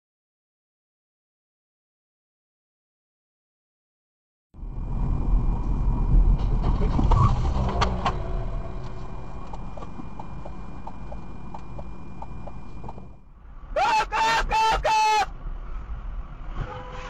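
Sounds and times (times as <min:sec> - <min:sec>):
car road and engine rumble: 0:04.6 - 0:17.0.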